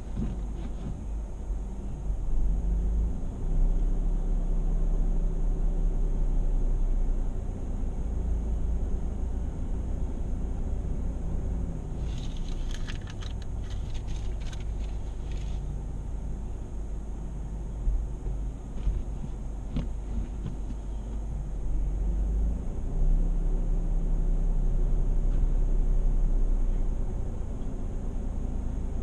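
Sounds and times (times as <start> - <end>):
car engine idling: 6.5 - 22.3.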